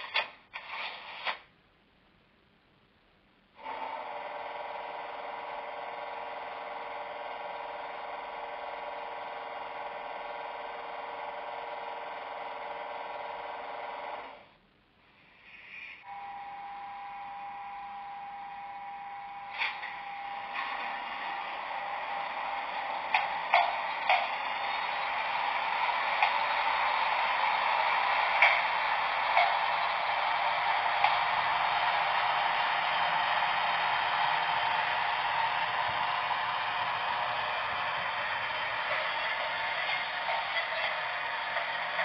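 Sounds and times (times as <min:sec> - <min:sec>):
electric locomotive running hum: 0:03.6 - 0:14.5, 0:16.0 - 0:42.0
short hissing bursts: 0:15.2 - 0:16.0.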